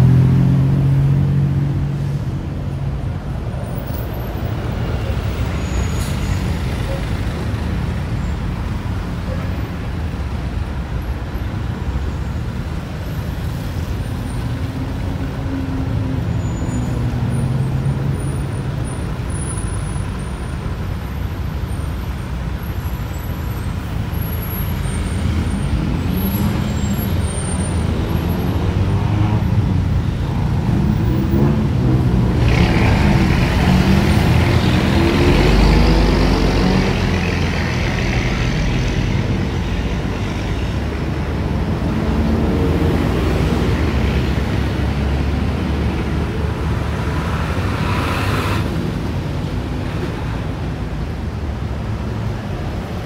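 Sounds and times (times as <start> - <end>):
low traffic rumble: 0.0 - 53.0
vehicles passing: 0.0 - 53.0
loud vehicle passing close: 41.1 - 50.3.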